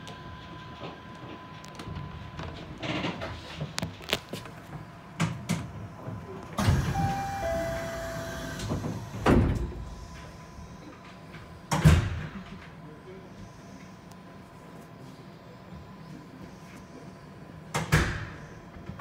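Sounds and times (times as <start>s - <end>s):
knocks and clunks in train car: 4.6s - 10.4s
short steady tones: 6.8s - 8.6s.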